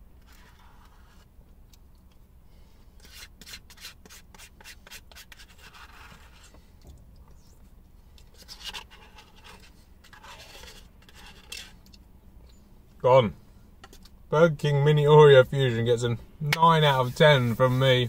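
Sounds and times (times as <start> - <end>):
plastic spoon scraping a tub: 8.4 - 11.8.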